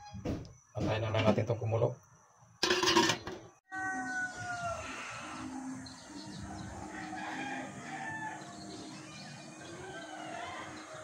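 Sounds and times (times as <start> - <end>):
outdoor background noise: 0.0 - 11.0
rooster crowing: 3.7 - 5.4, 6.5 - 8.5, 9.6 - 11.0.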